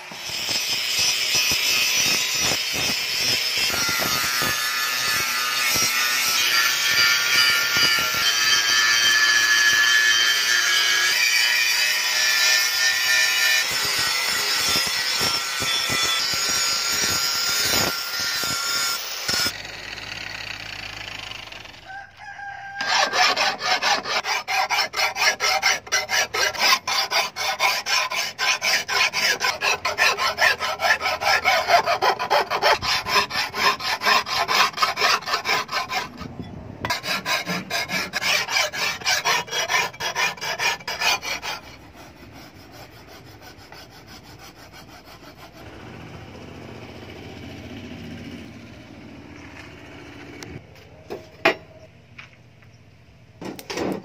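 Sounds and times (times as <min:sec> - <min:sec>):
angle grinder grinding steel: 0:00.0 - 0:21.7, 0:22.8 - 0:36.3, 0:36.9 - 0:48.4
hand tool rasping on steel: 0:22.8 - 0:45.9.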